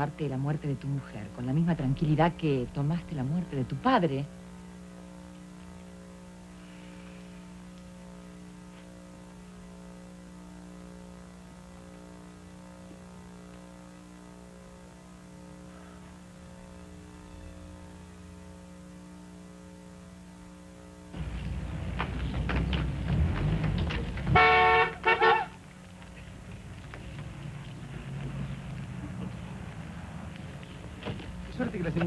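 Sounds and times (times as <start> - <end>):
electrical mains hum: 0.0 - 32.0
faint hiss: 0.8 - 22.3.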